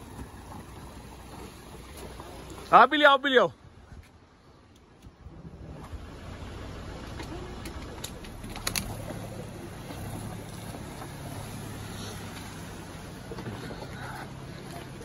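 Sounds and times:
car engine running slowly: 0:00.0 - 0:02.8, 0:04.7 - 0:15.0
stones clicking under tyres: 0:07.0 - 0:15.0.

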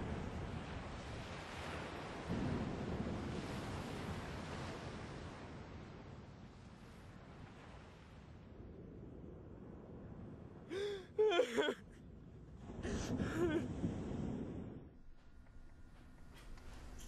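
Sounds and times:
man sobbing: 0:10.7 - 0:12.1, 0:12.8 - 0:13.7.

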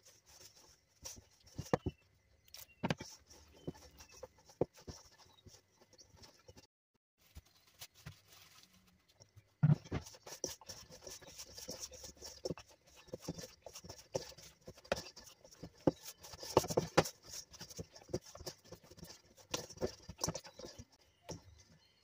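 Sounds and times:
dough slapping metal bowl: 0:09.6 - 0:21.4.

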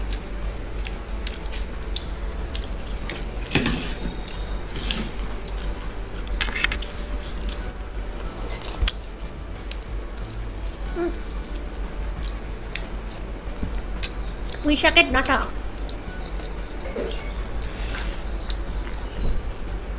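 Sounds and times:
low steady hum: 0:00.0 - 0:19.9
chewing: 0:15.6 - 0:19.3.

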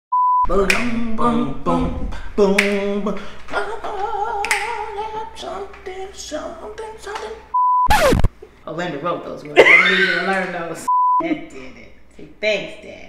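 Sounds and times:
man and woman singing a cappella: 0:00.4 - 0:07.6
test-tone beep: 0:07.6 - 0:08.3.

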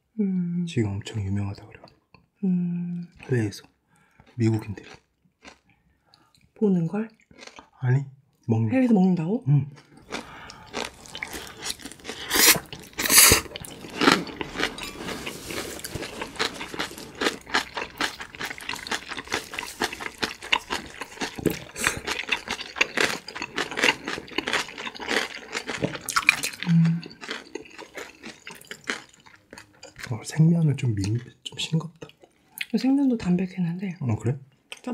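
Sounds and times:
wet chewing and crunching: 0:04.1 - 0:06.5, 0:07.1 - 0:07.8, 0:09.7 - 0:32.8
slurping noodles: 0:10.5 - 0:22.5.

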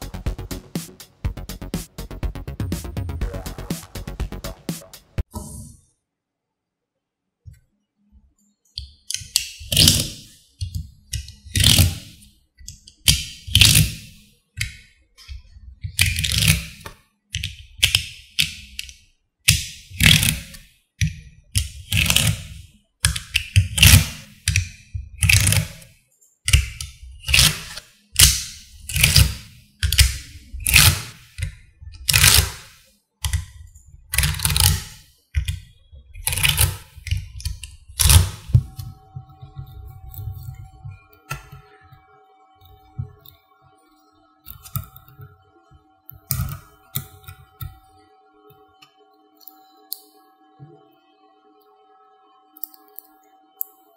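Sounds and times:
magnetic balls clicking together: 0:08.8 - 0:25.9, 0:26.5 - 0:38.9.

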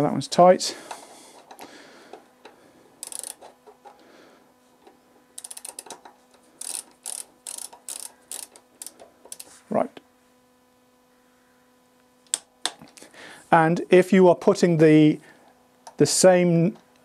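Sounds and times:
torque wrench ratchet clicking: 0:03.0 - 0:03.5, 0:05.4 - 0:09.5.

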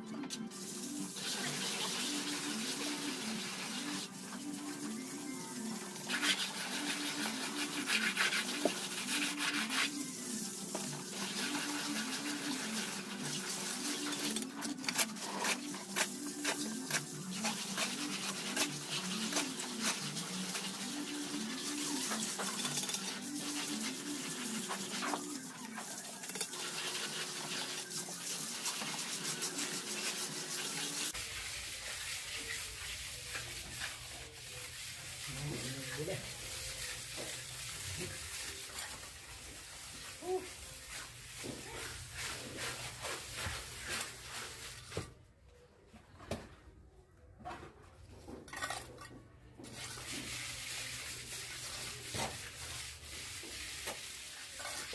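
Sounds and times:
trowel scraping wet concrete: 0:06.1 - 0:10.0, 0:11.1 - 0:26.6, 0:41.7 - 0:45.0.

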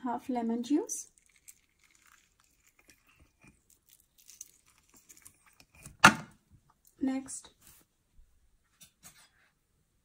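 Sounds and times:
wet squelching of lime: 0:01.1 - 0:05.8.

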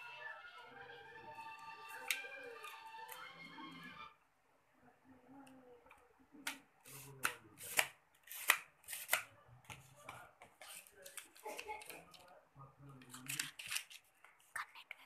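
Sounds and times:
paper rustling and crinkling: 0:07.7 - 0:12.3, 0:13.0 - 0:14.4.

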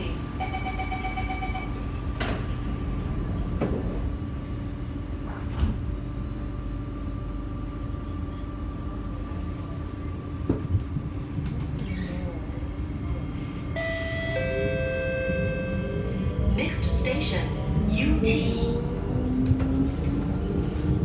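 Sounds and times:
door-closing warning beeps: 0:13.7 - 0:16.0.

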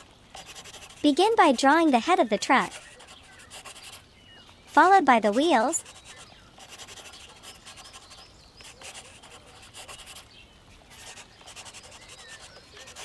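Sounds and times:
marker scratching on paper: 0:00.0 - 0:04.0, 0:04.7 - 0:10.3, 0:10.9 - 0:13.0.

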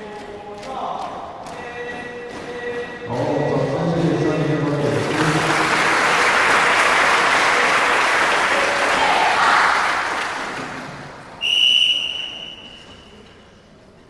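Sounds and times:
audience applause: 0:04.7 - 0:11.2.

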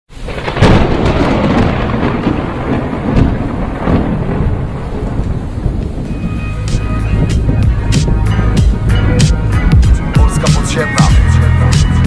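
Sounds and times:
rain hissing: 0:00.1 - 0:12.0
thunderclap and rumble: 0:00.1 - 0:12.0.

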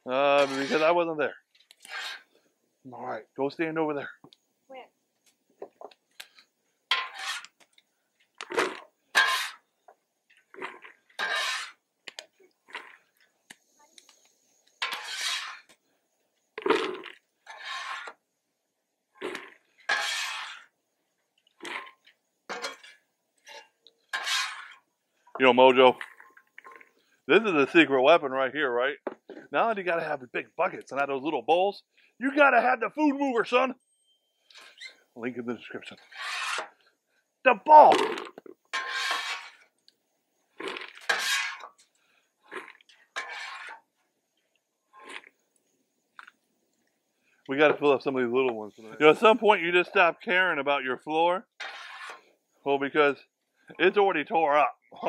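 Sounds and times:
metal scoop scraping a griddle: 0:00.1 - 0:01.0, 0:01.6 - 0:02.4, 0:06.9 - 0:07.6, 0:08.5 - 0:09.7, 0:10.5 - 0:11.8, 0:14.8 - 0:15.8, 0:16.6 - 0:18.2, 0:19.2 - 0:20.7, 0:21.6 - 0:24.8, 0:35.7 - 0:36.8, 0:38.7 - 0:39.7, 0:40.8 - 0:41.9, 0:42.5 - 0:43.9, 0:51.6 - 0:52.3.

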